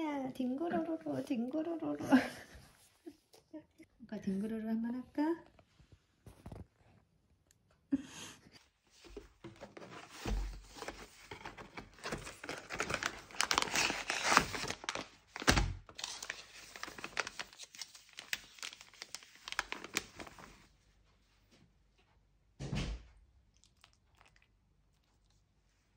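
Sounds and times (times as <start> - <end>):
cardboard box opened: 9.1 - 17.5
packet tearing and crinkling: 11.4 - 20.6.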